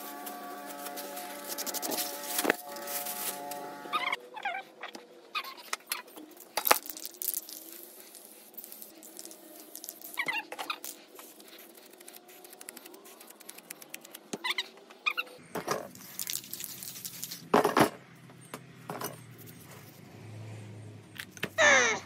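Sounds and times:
spray paint hissing: 0:00.0 - 0:03.7, 0:06.8 - 0:14.3
high squeaks: 0:00.0 - 0:04.2.

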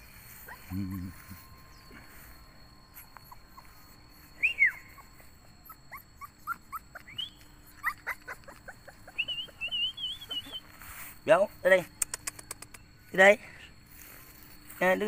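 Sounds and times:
puppies whimpering: 0:00.1 - 0:02.3, 0:02.9 - 0:11.0.

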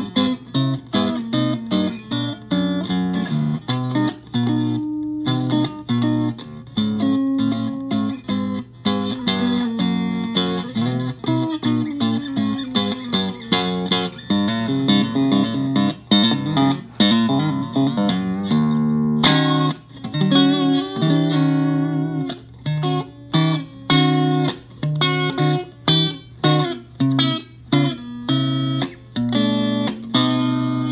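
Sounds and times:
electric guitar playing: 0:00.0 - 0:30.9.

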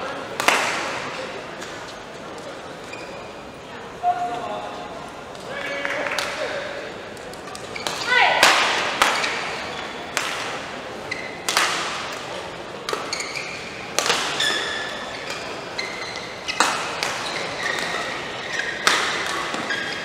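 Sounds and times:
rackets hitting shuttlecock: 0:00.3 - 0:01.8, 0:07.2 - 0:20.0
shoes squeaking on court: 0:02.8 - 0:03.4, 0:11.1 - 0:11.5, 0:12.9 - 0:20.0.

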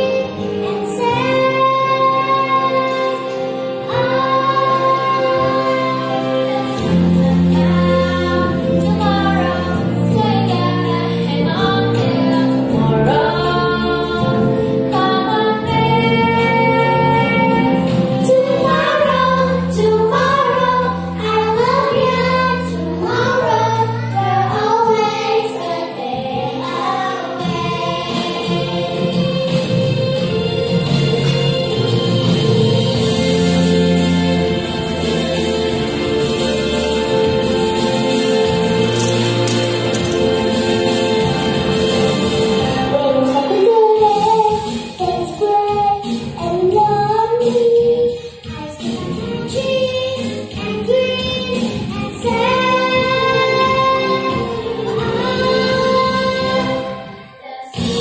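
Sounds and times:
girls singing into microphones: 0:00.0 - 0:30.0, 0:42.7 - 0:58.0
musical accompaniment: 0:00.0 - 0:58.0.

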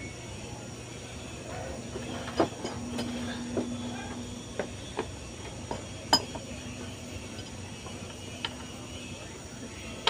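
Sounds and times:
faint steady hum: 0:00.0 - 0:10.0
metal tools clinking on pulley: 0:01.9 - 0:03.6.

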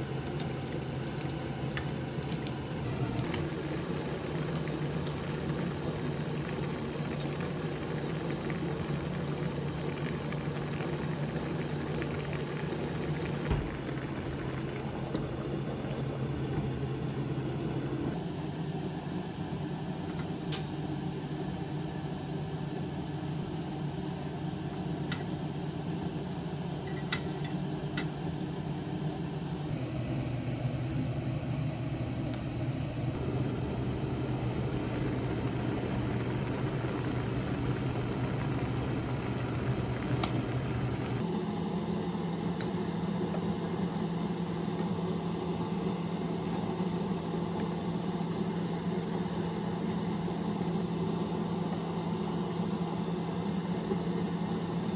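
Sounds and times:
low mechanical hum: 0:00.0 - 0:54.9.

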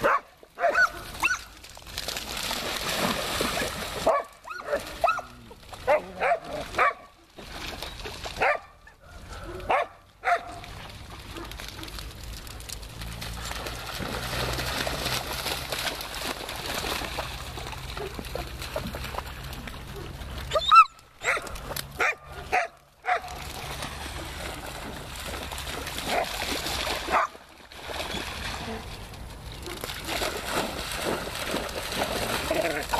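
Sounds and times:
dogs barking: 0:00.0 - 0:01.5, 0:04.0 - 0:07.1, 0:08.4 - 0:10.6, 0:20.5 - 0:23.4, 0:27.1 - 0:27.4
dogs splashing through water: 0:00.0 - 0:32.9.

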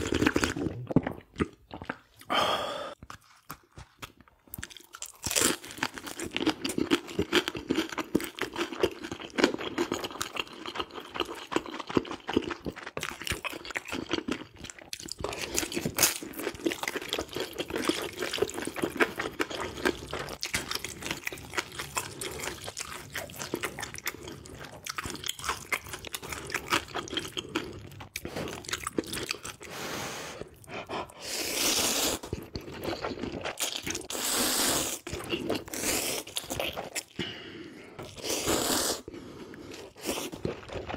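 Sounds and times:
person chewing food: 0:00.0 - 0:40.9
slurping noodles: 0:26.4 - 0:33.0, 0:33.6 - 0:40.9.

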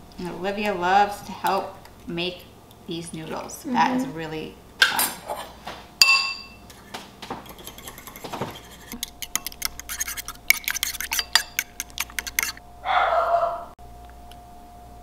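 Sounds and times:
ringing clink: 0:06.0 - 0:06.6
fork beating eggs in a bowl: 0:06.7 - 0:12.6.

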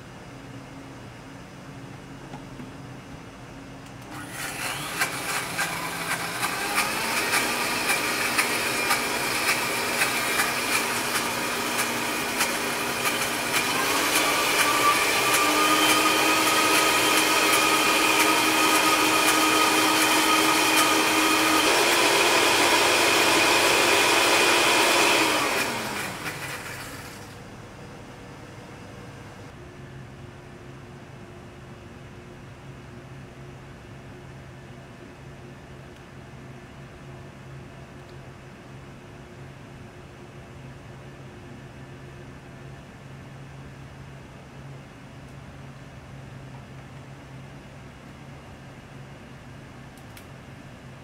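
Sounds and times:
blender motor whine: 0:04.1 - 0:27.4.

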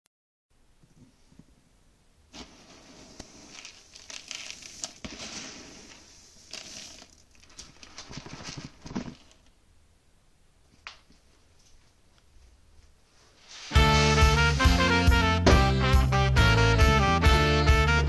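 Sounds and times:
hand stirring dry grain: 0:02.3 - 0:09.4, 0:13.4 - 0:14.9.

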